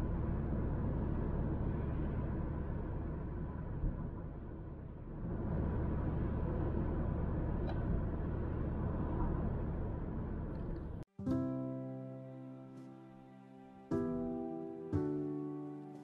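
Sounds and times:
car engine and tyres rumbling: 0:00.0 - 0:11.1.

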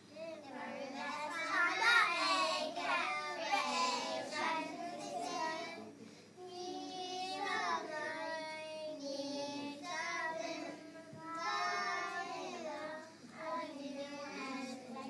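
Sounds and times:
children singing: 0:00.4 - 0:05.9, 0:06.5 - 0:15.0.

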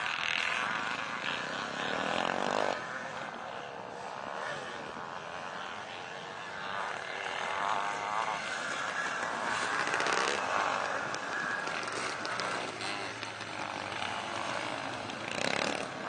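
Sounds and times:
motocross bike engines revving: 0:00.0 - 0:16.0.

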